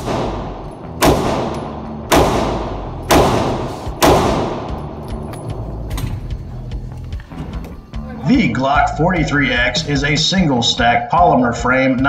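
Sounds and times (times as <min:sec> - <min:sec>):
pistol shots echoing indoors: 0:00.0 - 0:05.1.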